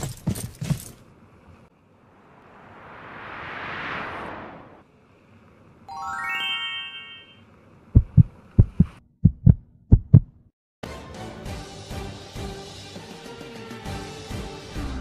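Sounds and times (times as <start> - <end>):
rising bell-like tones: 5.9 - 7.4
heartbeat thumps: 8.0 - 10.4
music: 10.8 - 15.0.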